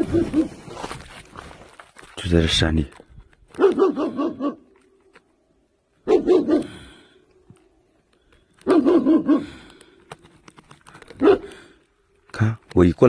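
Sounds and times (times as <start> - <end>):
dog barking: 0.0 - 0.6, 3.6 - 4.7, 6.0 - 6.8, 8.6 - 9.6, 11.2 - 11.6.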